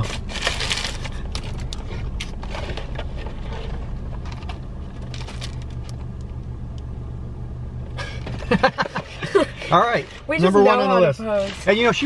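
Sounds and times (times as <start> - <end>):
paper wrappers crinkling: 0.0 - 6.0, 11.2 - 12.0
idling car hum inside cabin: 0.0 - 12.0.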